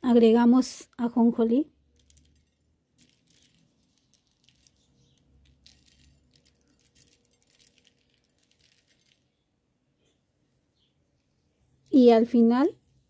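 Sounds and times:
seeds sprinkled onto a plate: 1.7 - 9.5.

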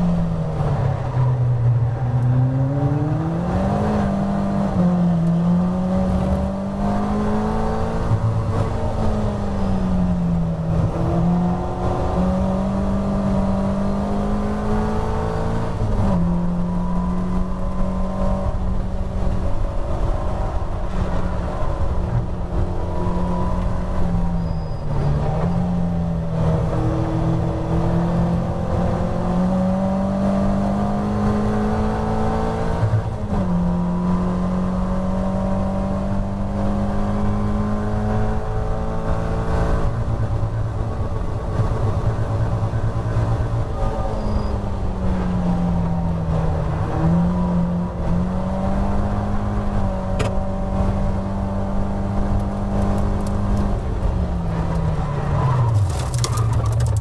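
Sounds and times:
road rumble: 0.0 - 57.0
wind: 0.0 - 57.0
car engine revving hard: 25.2 - 40.0.

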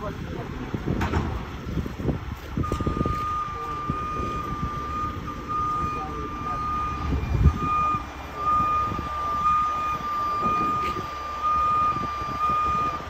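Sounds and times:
diesel engine running: 0.0 - 13.0
warning alarm beeping: 2.6 - 13.0.

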